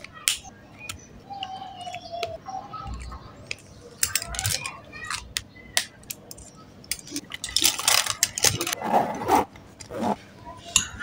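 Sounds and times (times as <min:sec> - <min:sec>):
plastic pens clattering: 0:03.0 - 0:05.3, 0:06.1 - 0:08.8
zipper pull: 0:08.7 - 0:10.2.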